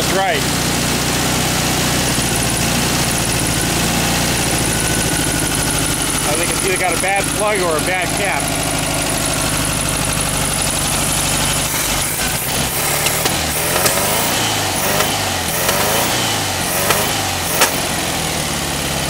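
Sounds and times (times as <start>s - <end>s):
car engine idling unevenly: 0.0s - 19.0s
engine snapping: 1.9s - 18.3s.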